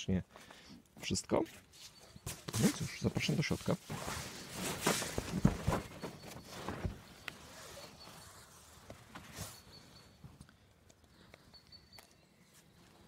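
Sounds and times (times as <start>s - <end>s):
hammock fabric rustling: 1.6s - 10.3s.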